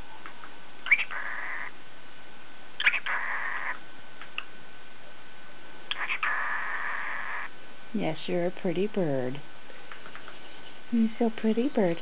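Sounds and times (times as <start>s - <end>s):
cockatiel raspy calls: 0.8s - 1.8s, 2.8s - 3.8s, 5.9s - 7.5s.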